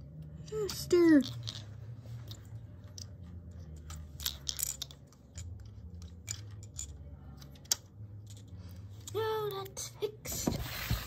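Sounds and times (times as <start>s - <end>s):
plastic toy bricks clicking: 3.8s - 9.2s.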